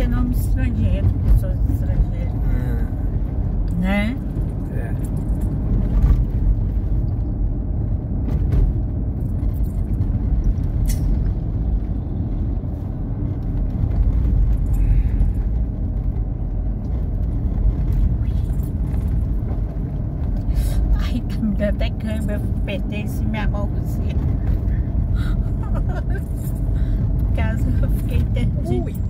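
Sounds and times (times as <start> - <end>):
car engine and tyres rumble: 0.0 - 29.0.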